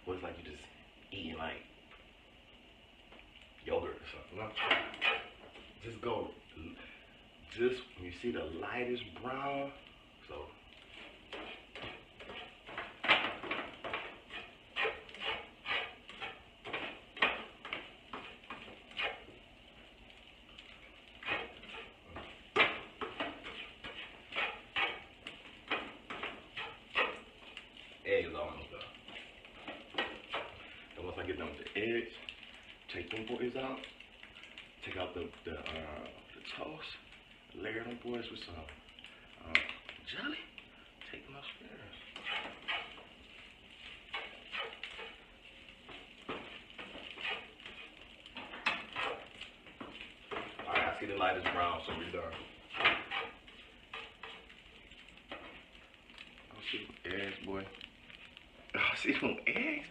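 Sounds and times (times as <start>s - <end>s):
spatula scraping frying pan: 4.4s - 5.8s, 10.7s - 32.9s, 41.9s - 56.5s.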